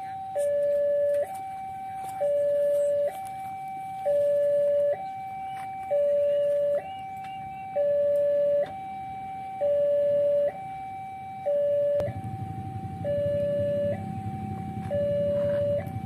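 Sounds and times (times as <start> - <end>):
two-tone warning siren: 0.0 - 16.0
tram low rumble: 11.7 - 16.0.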